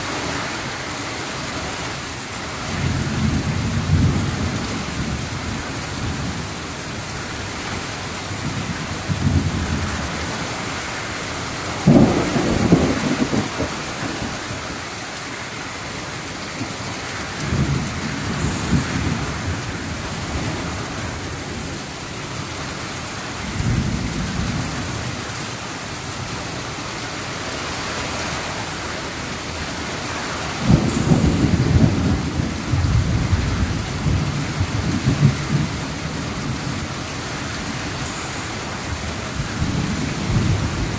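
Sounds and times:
rain falling steadily: 0:00.0 - 0:40.9
thunder rumbling: 0:11.6 - 0:14.7, 0:30.5 - 0:38.0.

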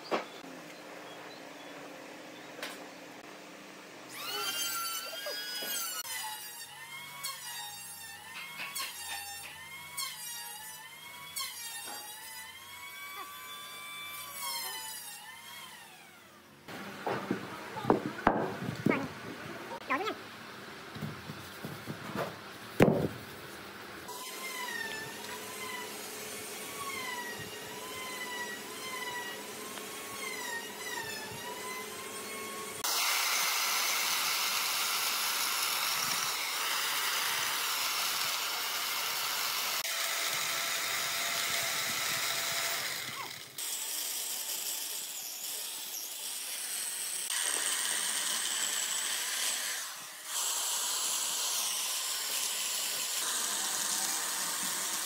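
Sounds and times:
chainsaw cutting log: 0:04.1 - 0:06.2, 0:24.1 - 0:45.7, 0:46.4 - 0:55.0.

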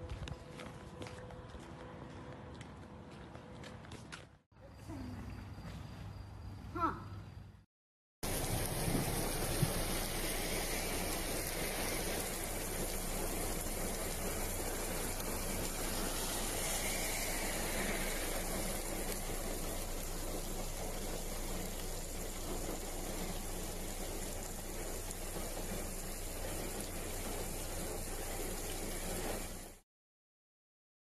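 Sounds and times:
heavy rain on wet pavement: 0:08.2 - 0:29.8.

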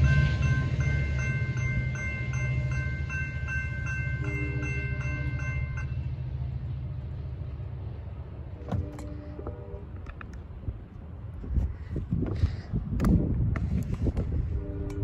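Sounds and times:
crossing signal bell dinging: 0:00.0 - 0:06.2.

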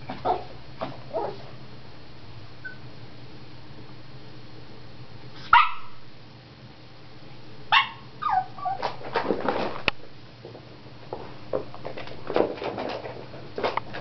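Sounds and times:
small dog barking and yipping: 0:00.1 - 0:00.5, 0:01.1 - 0:01.5, 0:05.4 - 0:06.0, 0:07.7 - 0:09.0.

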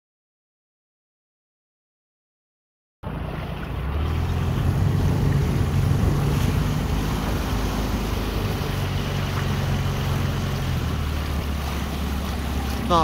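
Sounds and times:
outboard motor running: 0:03.0 - 0:13.0
water rushing past hull: 0:03.0 - 0:13.0
wind on microphone: 0:03.8 - 0:11.6.

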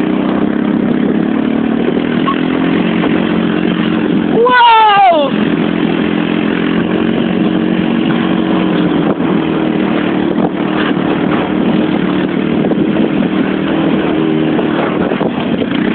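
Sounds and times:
constant rushing noise: 0:00.0 - 0:15.9
quad bike engine running: 0:00.0 - 0:15.9.

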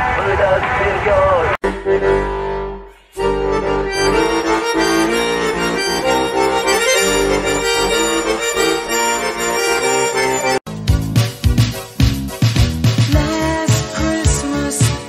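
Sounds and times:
button accordion playing chords: 0:01.6 - 0:11.0.

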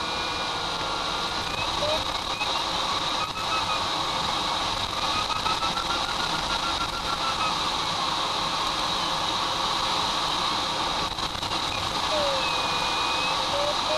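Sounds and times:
airflow rushing over canopy: 0:00.0 - 0:13.9
electronic variometer beeping: 0:01.5 - 0:07.7.

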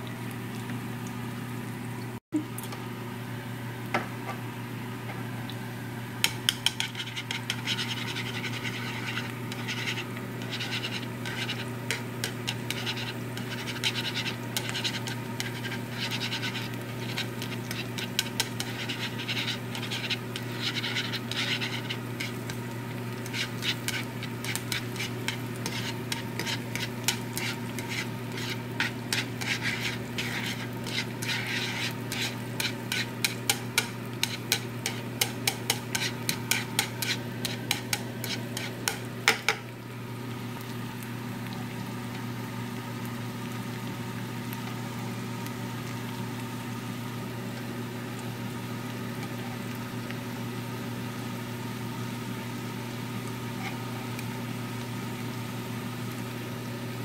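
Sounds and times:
steady hum: 0:00.0 - 0:57.0
food sizzling in a pan: 0:03.5 - 0:57.0
chopsticks tapping frying pan: 0:06.2 - 0:07.5, 0:32.6 - 0:39.6.

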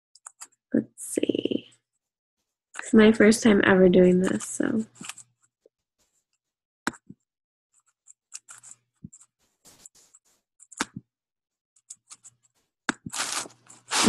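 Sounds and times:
soft rustles: 0:12.4 - 0:14.0.

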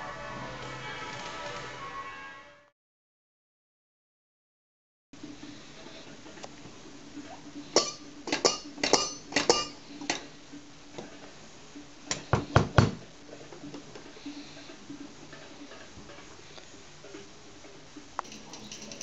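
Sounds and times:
clinking metal kitchenware hits: 0:07.8 - 0:09.8, 0:18.2 - 0:19.0.

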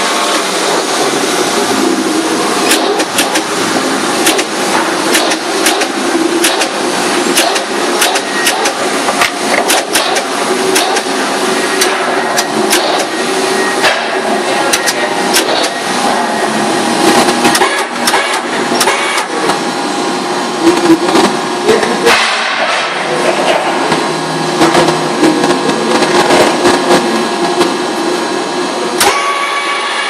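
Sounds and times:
paper-trimming machinery running: 0:00.0 - 0:30.0
sharp clacks and knocks: 0:04.2 - 0:11.1.

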